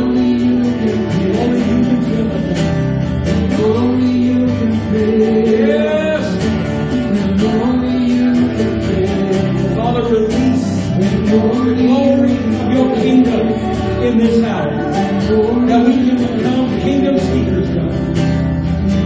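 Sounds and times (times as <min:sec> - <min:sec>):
guitar: 0:00.0 - 0:19.0
keyboard: 0:00.0 - 0:19.0
person singing: 0:00.0 - 0:19.0.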